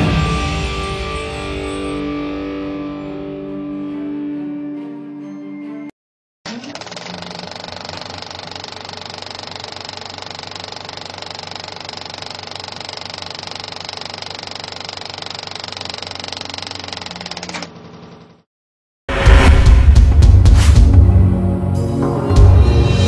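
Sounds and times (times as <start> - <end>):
film projector clatter: 6.5 - 18.4.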